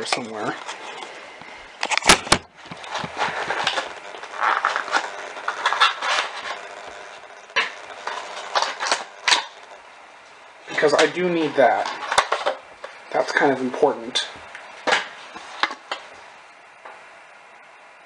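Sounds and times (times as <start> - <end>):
rustling cardboard packaging: 0.4 - 9.6.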